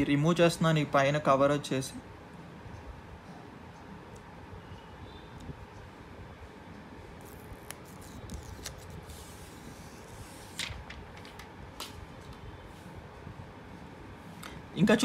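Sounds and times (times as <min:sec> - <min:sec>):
plastic film peeling: 0:07.2 - 0:10.8.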